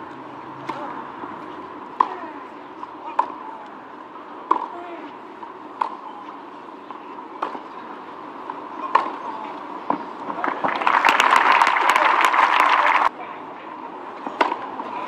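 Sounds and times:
tennis ball hit by racket: 0.6 - 1.0, 1.9 - 3.4, 4.4 - 4.8, 5.8 - 6.0, 7.4 - 7.7, 8.8 - 9.3, 14.3 - 14.7
crowd applauding: 10.3 - 13.1.

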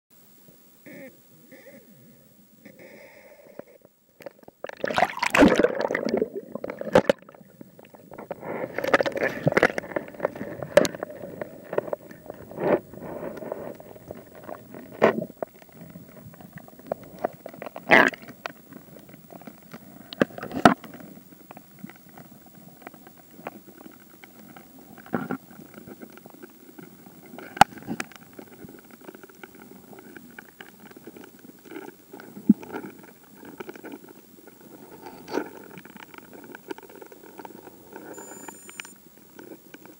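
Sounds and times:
underwater gurgling and rushing water: 4.5 - 35.2.

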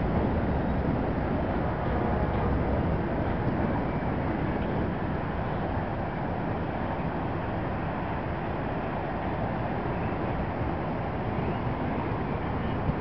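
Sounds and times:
outdoor ambient rush: 0.0 - 13.0.

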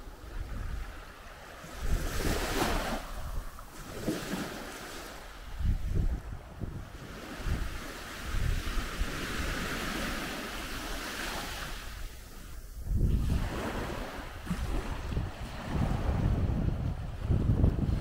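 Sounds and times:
waves washing onto sandy shore: 0.0 - 18.0
wind buffeting microphone: 0.0 - 18.0.

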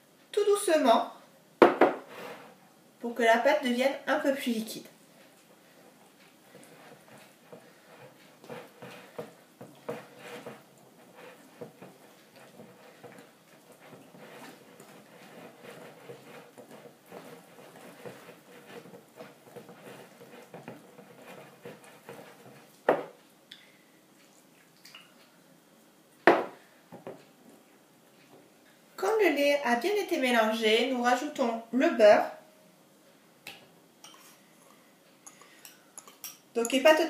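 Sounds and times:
knocks on dishes: 1.6 - 2.0, 26.3 - 26.6
whisk beating batter in bowl: 6.5 - 23.2.

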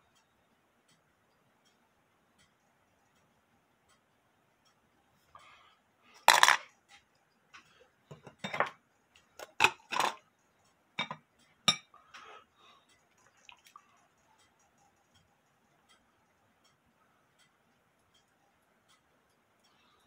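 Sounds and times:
small metal parts clinking: 6.2 - 6.7.

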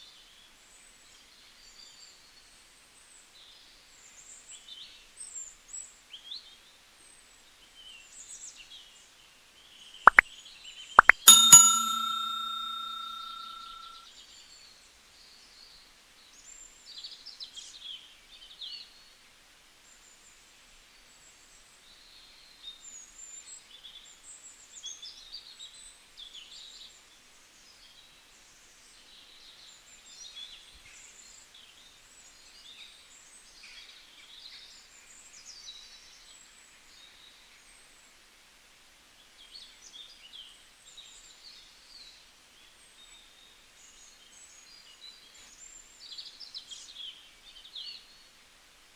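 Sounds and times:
bell-like chime: 11.0 - 14.0.

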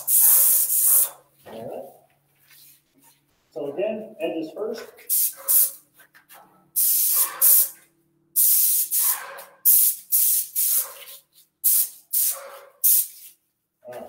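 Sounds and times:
paint sprayer hissing bursts: 0.0 - 1.2, 5.1 - 5.8, 6.8 - 7.8, 8.4 - 13.4.

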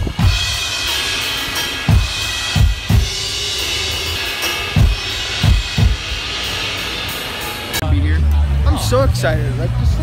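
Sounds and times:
cymbals: 0.0 - 7.8.

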